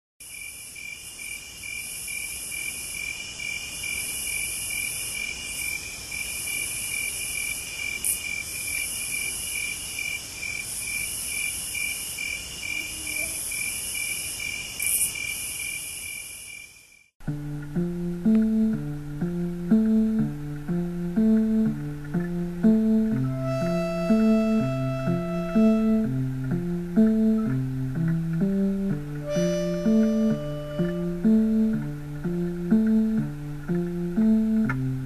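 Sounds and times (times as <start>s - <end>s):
crickets chirping: 0.2s - 17.1s
louder tick: 18.3s - 18.5s.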